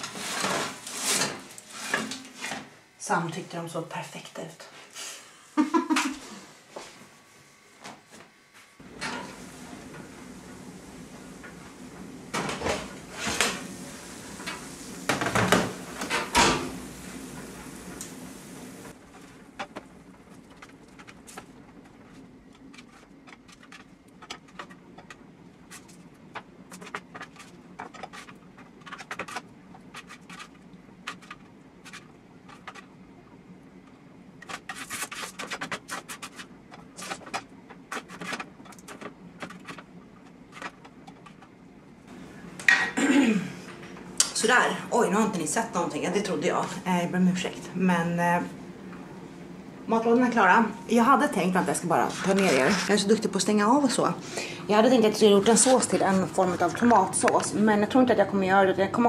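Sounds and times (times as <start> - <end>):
steady hiss: 12.9 - 19.0
metal baking tray clattering: 52.0 - 53.6.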